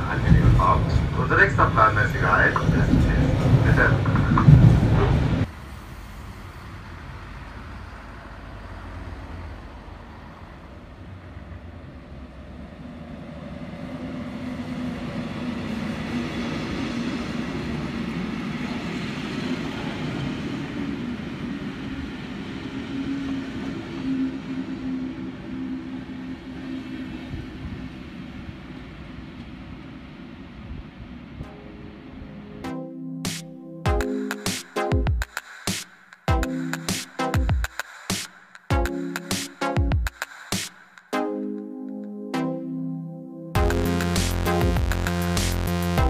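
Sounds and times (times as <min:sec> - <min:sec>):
diesel train engine drone: 0:00.0 - 0:33.2, 0:43.6 - 0:46.0.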